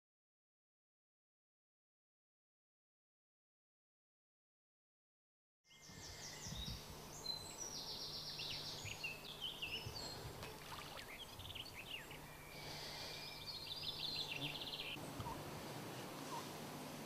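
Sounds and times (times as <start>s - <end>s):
small birds singing and chirping: 5.7s - 15.4s.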